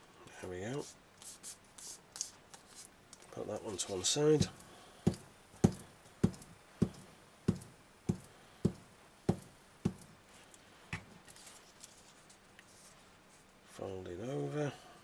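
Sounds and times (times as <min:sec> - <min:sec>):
glue stick knocking on card: 0:04.4 - 0:10.1.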